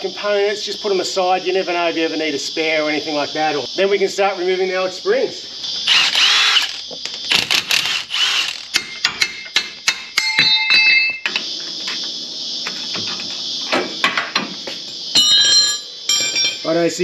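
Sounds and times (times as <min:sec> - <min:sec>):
steady hiss: 0:00.0 - 0:10.2, 0:11.0 - 0:17.0
metallic knocks and clinks of tools: 0:08.8 - 0:11.5, 0:15.1 - 0:16.7.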